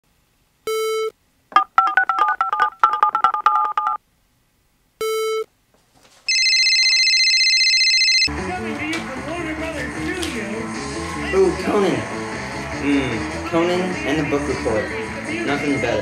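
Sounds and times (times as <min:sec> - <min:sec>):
touch-tone dialing beeps: 0:00.7 - 0:04.0, 0:06.3 - 0:08.3
short phone beep: 0:06.3 - 0:08.3.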